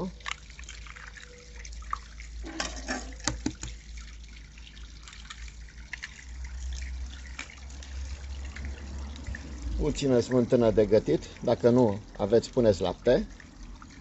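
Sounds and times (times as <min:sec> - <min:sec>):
fountain water trickling: 0:00.0 - 0:14.0
eggs cracking on plastic bowl: 0:03.2 - 0:03.8.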